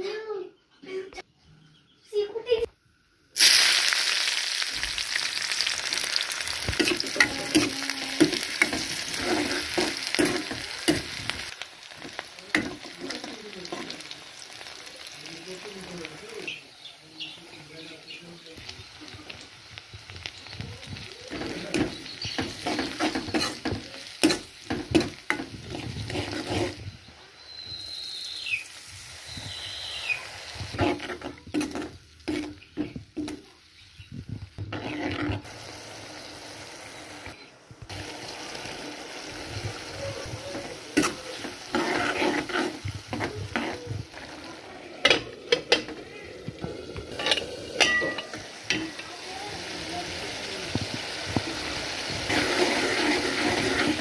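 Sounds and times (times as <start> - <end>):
onions frying in oil sizzling: 3.3 - 54.0
spatula scraping a wok: 6.1 - 15.1, 20.3 - 26.9, 30.5 - 33.4, 34.6 - 35.5, 40.3 - 49.0, 51.8 - 54.0
high falling chirps: 26.8 - 30.6.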